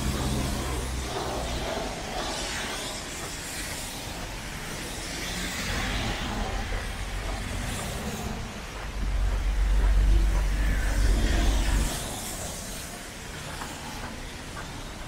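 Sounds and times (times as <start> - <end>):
passing vehicles on street: 0.0 - 3.2.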